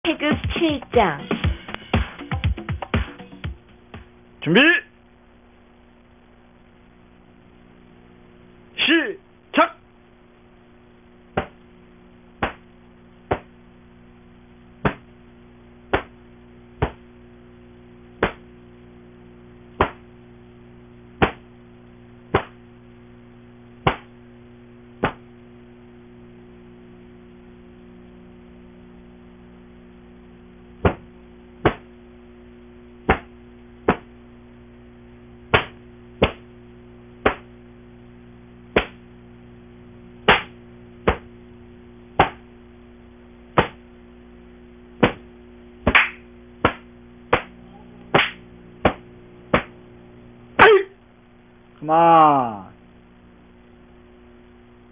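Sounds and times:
steady low hum: 0.0 - 54.9
sharp snaps of martial arts moves: 11.4 - 11.6, 12.4 - 12.7, 13.3 - 13.5, 14.8 - 15.1, 15.9 - 16.2, 16.8 - 17.0, 18.2 - 18.5, 19.8 - 20.0, 21.2 - 21.5, 22.3 - 22.6, 23.8 - 24.1, 25.0 - 25.2, 30.8 - 31.9, 33.1 - 33.3, 33.9 - 34.1, 35.5 - 36.5, 37.2 - 37.5, 38.8 - 39.0, 40.3 - 41.3, 42.2 - 42.4, 43.6 - 43.8, 45.0 - 49.8.

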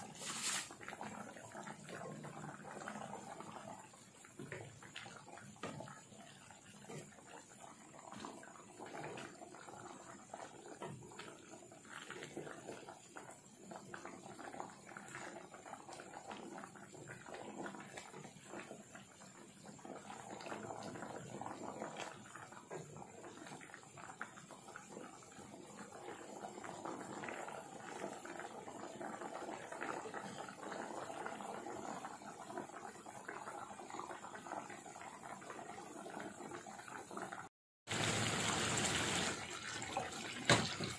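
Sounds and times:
wooden spatula stirring: 0.0 - 0.8
sauce bubbling and popping: 0.0 - 37.5.

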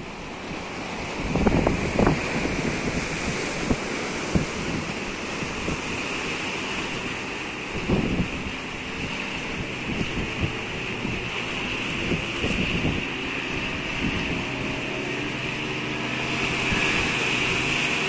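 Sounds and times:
small boat engines running: 0.0 - 18.0
surf washing over rocks: 0.0 - 18.0
wind buffeting microphone: 0.0 - 18.0.

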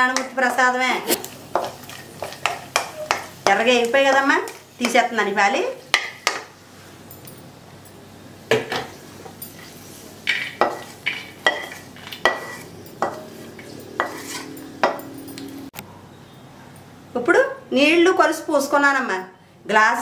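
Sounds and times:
spatula scraping metal pan: 9.5 - 14.7.

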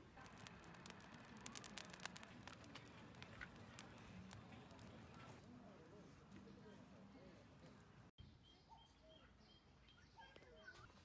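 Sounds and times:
firewood crackling: 0.0 - 6.4.

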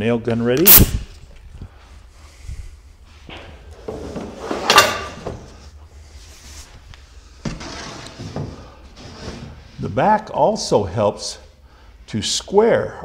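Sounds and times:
panel scraping slide: 3.8 - 5.6, 7.4 - 9.7.

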